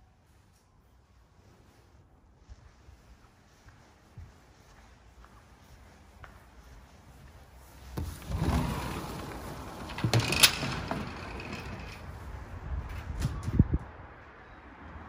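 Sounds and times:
sliding screen door rolling: 0:08.0 - 0:13.4.

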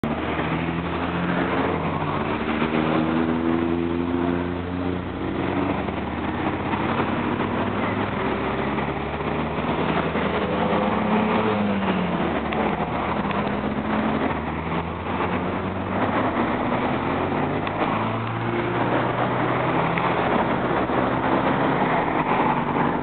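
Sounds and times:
passing motor vehicles rumble: 0:00.0 - 0:23.0.

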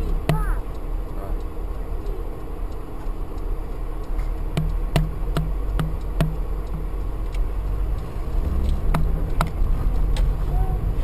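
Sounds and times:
car engine and tyre rumble: 0:00.0 - 0:11.0
turn signal ticking: 0:00.0 - 0:11.0.

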